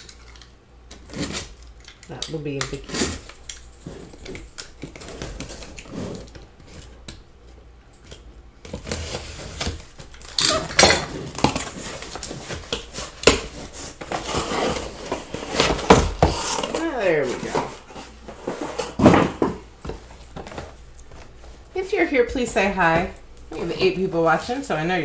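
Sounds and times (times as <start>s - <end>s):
cardboard scraping and rustling: 4.9s - 7.0s, 8.7s - 10.0s, 11.1s - 21.6s.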